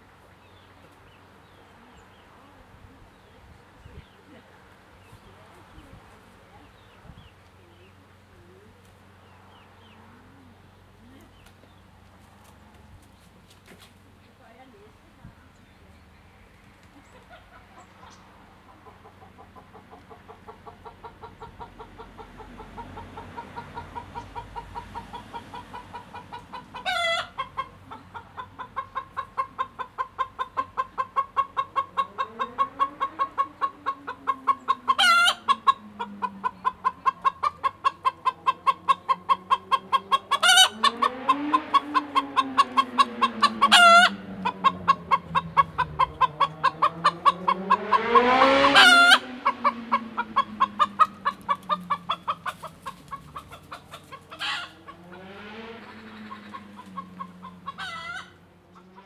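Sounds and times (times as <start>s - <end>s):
hen clucking: 17.0s - 59.0s
hen squawking: 31.8s - 55.1s, 55.8s - 58.4s
low sound rising and falling: 40.9s - 51.9s.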